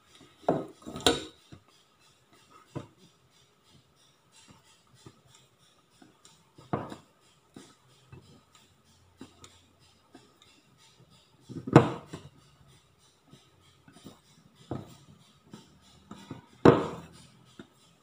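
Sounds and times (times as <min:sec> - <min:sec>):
knock: 0:11.7 - 0:12.1, 0:16.6 - 0:17.1.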